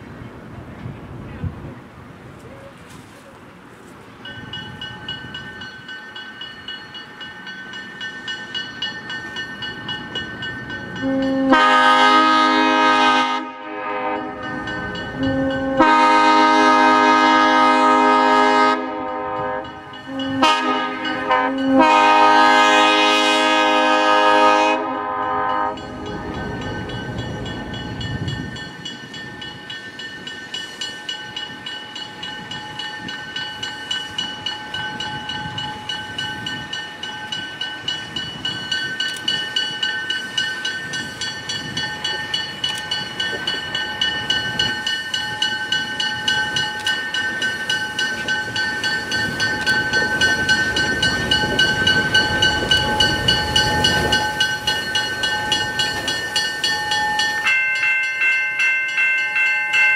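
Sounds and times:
locomotive air horn blasts: 11.0s - 14.5s, 15.2s - 25.9s.

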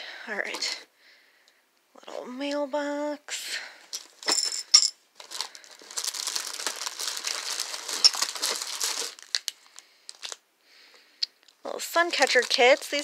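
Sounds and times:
paper and plastic bags crinkling: 3.9s - 4.5s, 5.2s - 10.4s, 11.4s - 13.0s.

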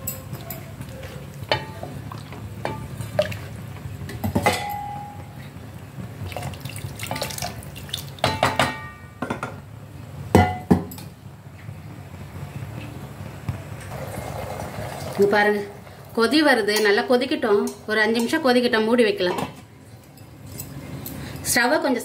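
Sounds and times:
ladle clinking on metal pot: 4.3s - 5.2s.

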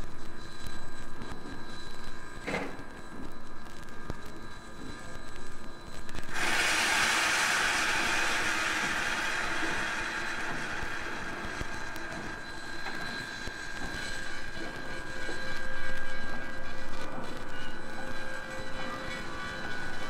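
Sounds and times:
steam locomotive hissing: 6.2s - 20.0s.

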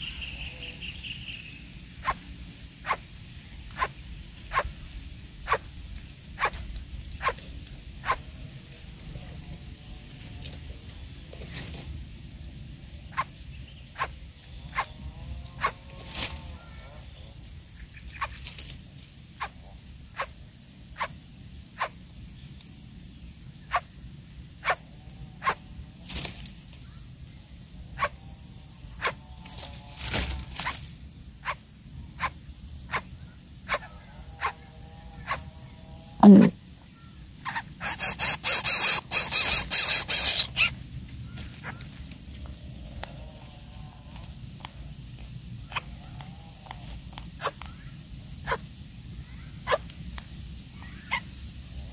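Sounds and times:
rapid rasping burst: 37.8s - 40.6s
falling squeal: 37.8s - 40.7s.

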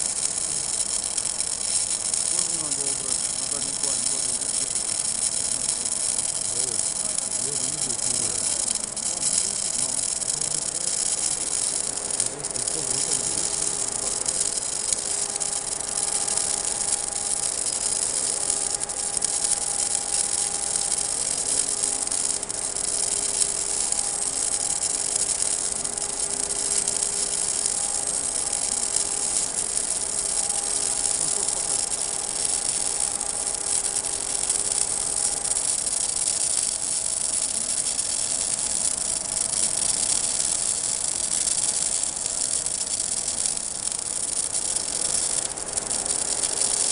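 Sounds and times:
steady hum: 0.0s - 46.9s
welding arc crackling and hissing: 0.0s - 46.9s.

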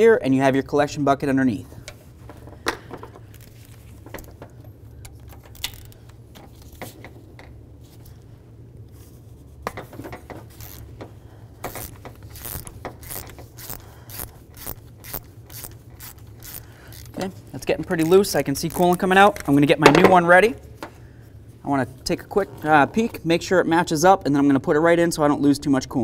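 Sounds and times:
ratchet pawl clicking: 5.0s - 6.1s, 10.5s - 19.4s.

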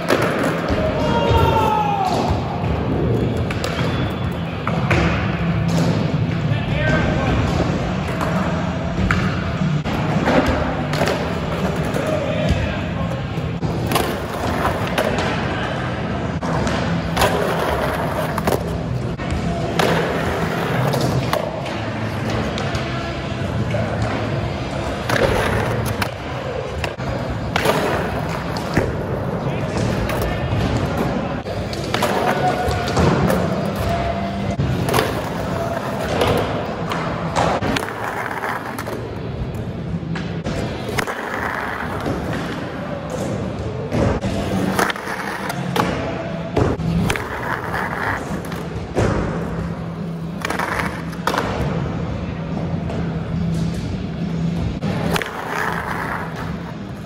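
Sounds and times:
skateboard wheels rolling on concrete: 13.0s - 57.0s
skateboard clacking and grinding: 54.8s - 57.0s.

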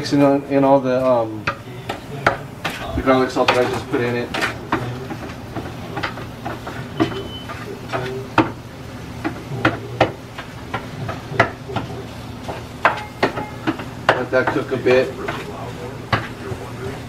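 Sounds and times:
meat sizzling: 0.9s - 17.0s
spatula knocking against pan: 3.4s - 8.6s, 9.2s - 15.4s.

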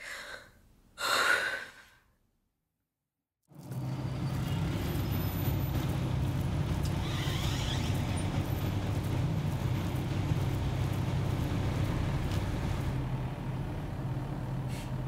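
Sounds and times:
road noise: 3.5s - 15.0s
vehicle engine rumble: 3.5s - 15.0s.

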